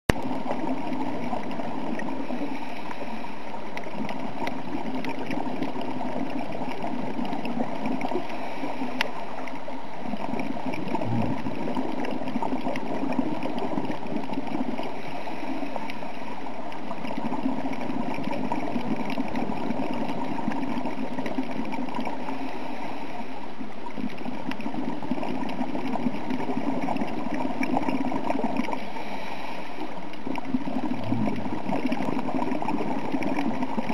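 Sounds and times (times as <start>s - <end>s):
underwater gurgling rush: 0.1s - 33.9s
faint clicks: 3.7s - 5.8s, 8.9s - 9.6s.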